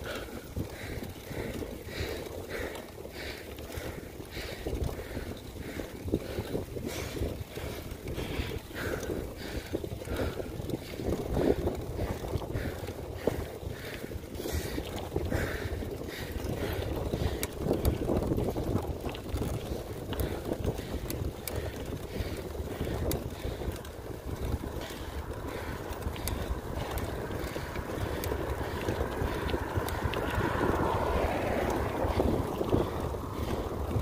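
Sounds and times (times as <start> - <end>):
wind buffeting the microphone: 0.0 - 34.0
car passing: 24.6 - 34.0.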